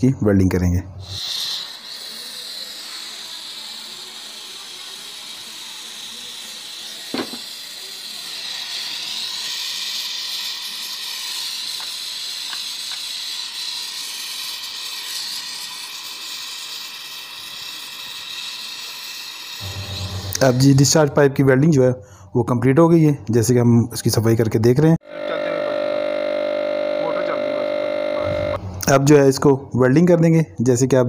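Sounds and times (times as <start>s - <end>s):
gas torch hissing: 0.9s - 21.2s.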